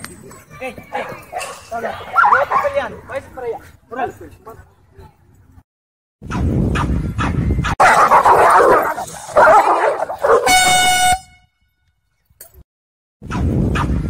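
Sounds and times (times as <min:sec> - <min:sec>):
dogs growling and snarling: 0:07.8 - 0:10.4
short horn blast: 0:10.4 - 0:11.7.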